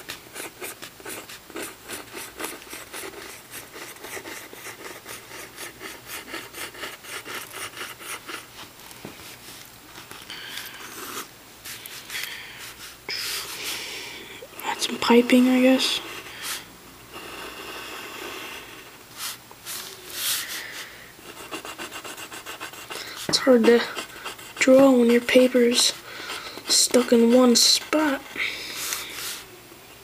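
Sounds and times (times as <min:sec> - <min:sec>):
pencil scratching on paper: 0:00.0 - 0:08.5, 0:21.2 - 0:29.4.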